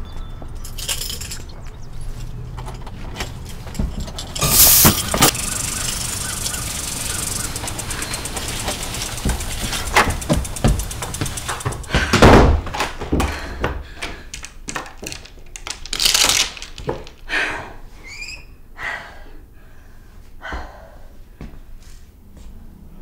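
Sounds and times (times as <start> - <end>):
lock and door chain clicking: 0.6 - 1.5.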